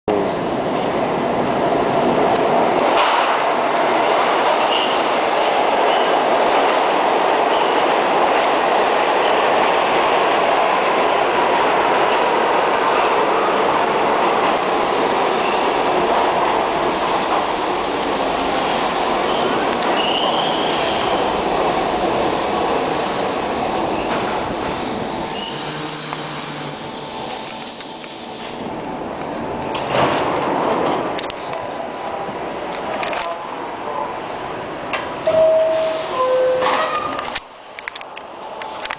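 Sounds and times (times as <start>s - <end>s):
steel wheels rushing on rail: 0.2s - 38.9s
high-pitched wheel squeal: 24.3s - 28.6s.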